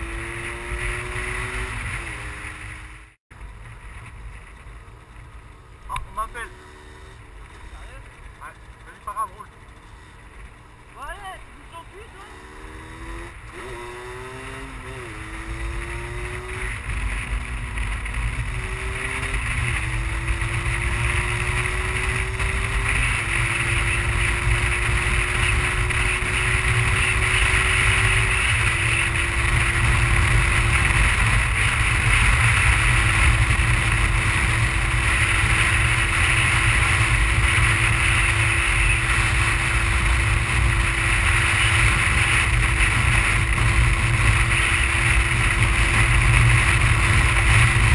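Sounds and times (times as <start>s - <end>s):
two-stroke motorbike engine accelerating: 0.0s - 3.2s, 5.9s - 47.9s
wind noise on microphone: 12.7s - 47.9s.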